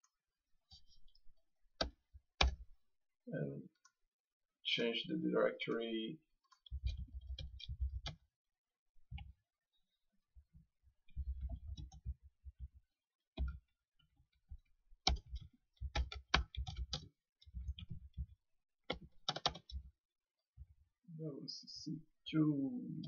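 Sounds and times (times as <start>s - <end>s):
computer keyboard typing: 15.0s - 18.0s, 18.9s - 19.8s.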